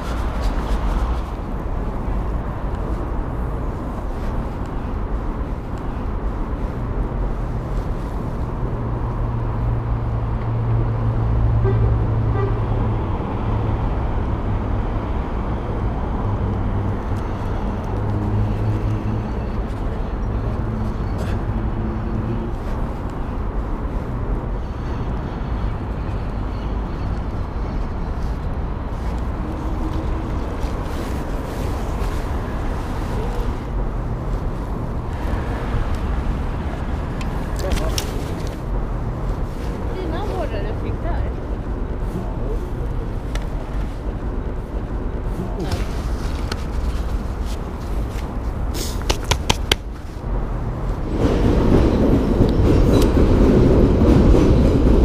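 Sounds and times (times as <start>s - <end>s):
city traffic noise: 0.0s - 55.0s
low engine hum: 0.0s - 55.0s.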